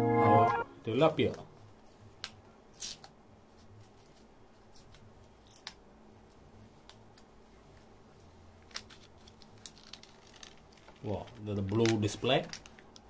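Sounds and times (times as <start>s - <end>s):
protective film peeling crackle: 8.6s - 13.0s.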